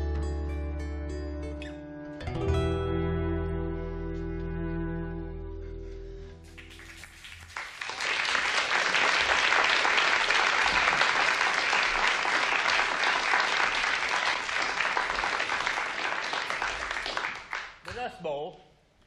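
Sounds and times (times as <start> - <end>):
audience applauding: 6.5 - 18.1.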